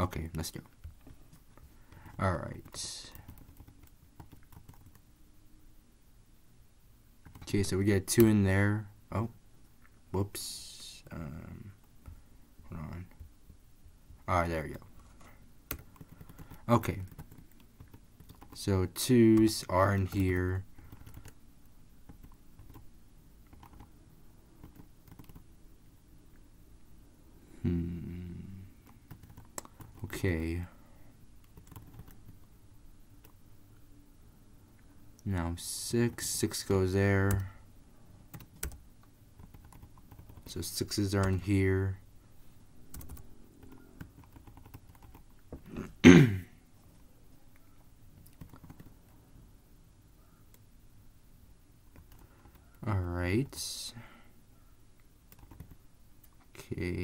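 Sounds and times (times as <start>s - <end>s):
computer keyboard keystrokes: 2.6s - 5.0s, 15.0s - 18.6s, 19.4s - 21.4s, 22.1s - 22.8s, 23.5s - 23.9s, 24.6s - 25.4s, 28.8s - 30.2s, 31.4s - 32.4s, 38.3s - 38.8s, 39.4s - 40.6s, 42.9s - 45.3s, 48.2s - 49.0s, 51.9s - 52.6s, 55.3s - 55.8s
faint keyboard clicks: 28.8s - 30.2s, 47.5s - 49.2s
person clearing throat: 45.6s - 46.6s.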